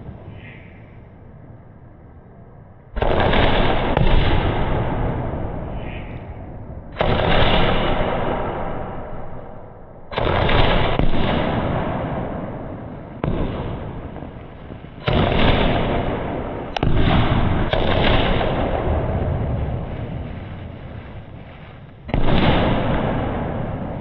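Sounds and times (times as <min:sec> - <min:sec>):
firework cake bangs: 0:10.1 - 0:24.0.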